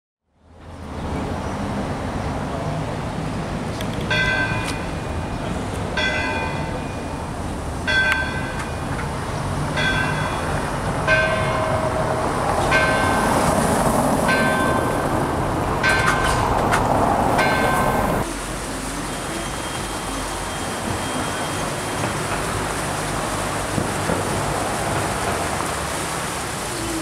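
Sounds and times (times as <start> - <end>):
town noise hum: 0.3 - 27.0
church bell ringing: 4.1 - 5.4, 6.0 - 9.0, 9.8 - 13.7, 14.3 - 16.4, 17.4 - 18.2.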